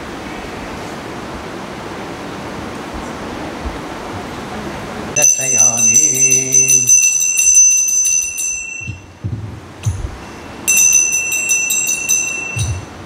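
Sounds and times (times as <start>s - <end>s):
hand bell ringing rapidly: 5.2s - 9.2s, 9.8s - 13.0s.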